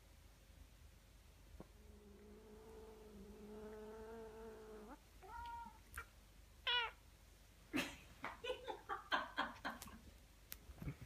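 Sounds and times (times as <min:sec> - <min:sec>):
cat growling: 0:01.6 - 0:05.8
cat meowing: 0:04.9 - 0:07.0.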